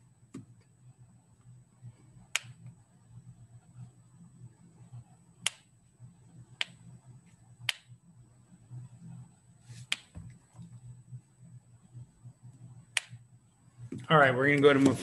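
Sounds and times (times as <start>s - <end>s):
faint high-pitched whine: 0.0s - 15.0s
low steady hum: 0.0s - 15.0s.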